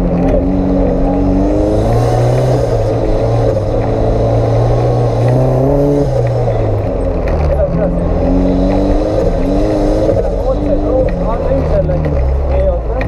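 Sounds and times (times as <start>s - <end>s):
off-road vehicle engine revving: 0.0s - 13.0s.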